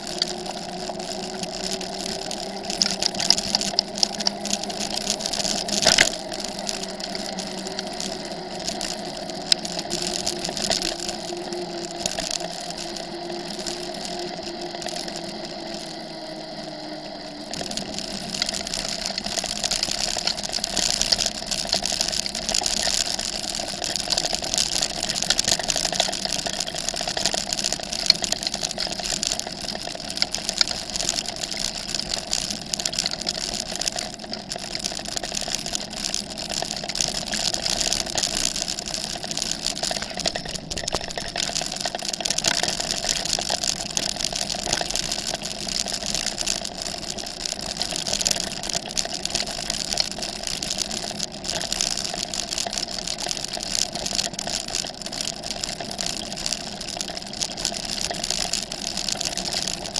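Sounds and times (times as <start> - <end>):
tyres rattling on gravel: 17.6 - 59.9.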